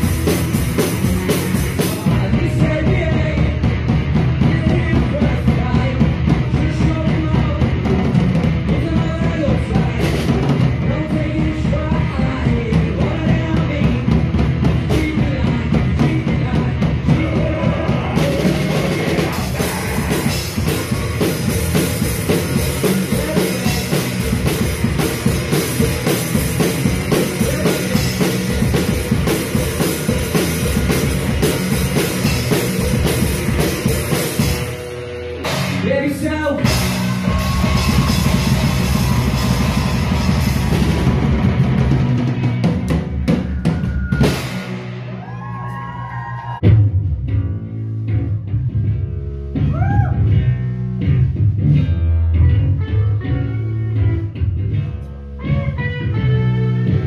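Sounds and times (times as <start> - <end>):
drum kit: 0.0 - 57.0
rock band playing live: 0.0 - 57.0.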